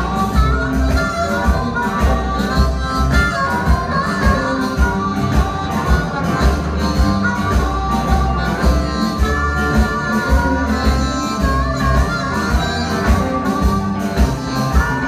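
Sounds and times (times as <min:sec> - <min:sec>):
blues band playing: 0:00.0 - 0:15.0
harmonica held notes: 0:00.0 - 0:15.0.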